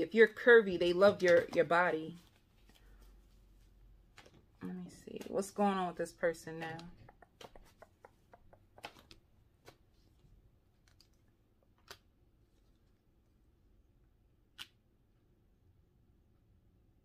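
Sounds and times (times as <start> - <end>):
cards clicking on a table: 6.8 - 9.8.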